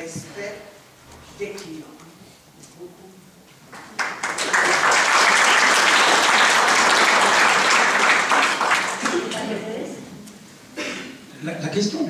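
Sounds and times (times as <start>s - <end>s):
audience applauding: 3.8s - 9.6s.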